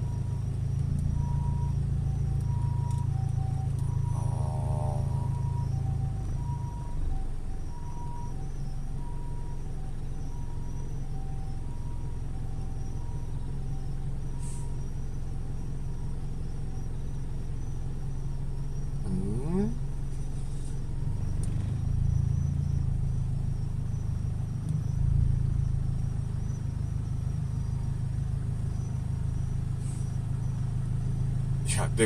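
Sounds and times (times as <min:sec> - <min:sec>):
car engine idling: 0:00.0 - 0:32.0
faint two-tone siren: 0:00.0 - 0:32.0
siren whoop: 0:01.0 - 0:16.2.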